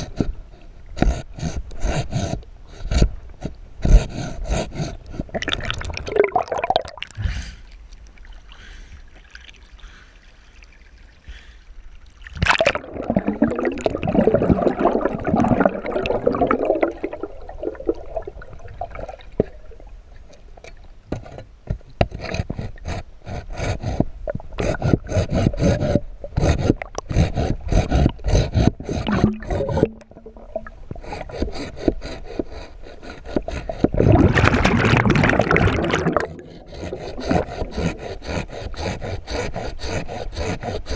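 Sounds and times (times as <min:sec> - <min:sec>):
underwater wood scraping and knocking: 0:00.0 - 0:05.8, 0:20.2 - 0:40.9
sharp clicks underwater: 0:24.3 - 0:32.0.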